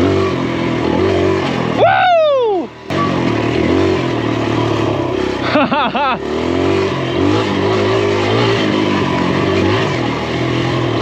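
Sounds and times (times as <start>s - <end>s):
dirt bike engine revving: 0.0s - 11.0s
person laughing: 5.4s - 6.4s.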